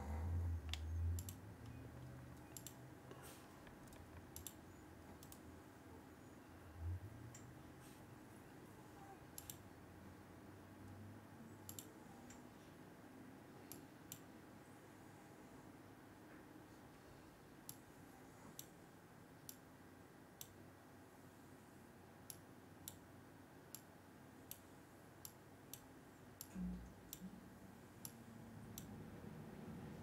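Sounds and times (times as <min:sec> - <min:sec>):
faint computer clicks: 0:00.6 - 0:05.5, 0:09.3 - 0:09.7, 0:11.6 - 0:12.5.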